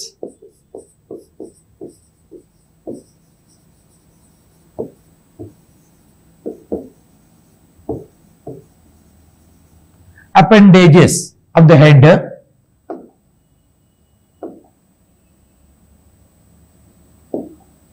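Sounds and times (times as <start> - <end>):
pen tapping on glass screen: 0.1 - 9.1, 12.9 - 13.2, 14.4 - 14.8, 17.3 - 17.7.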